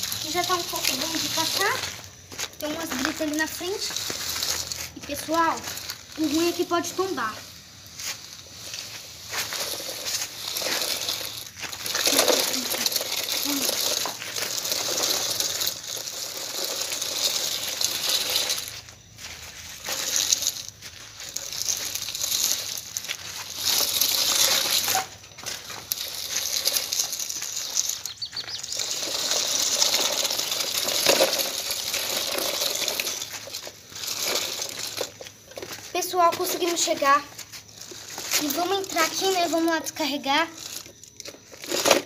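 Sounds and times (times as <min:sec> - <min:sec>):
plastic wheels crunching on gravel: 0:00.0 - 0:42.0.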